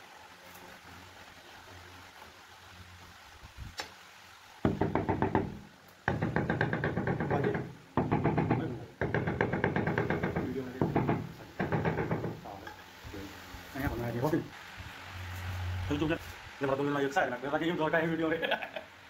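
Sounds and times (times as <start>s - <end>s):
hammer tapping stone: 4.7s - 12.5s.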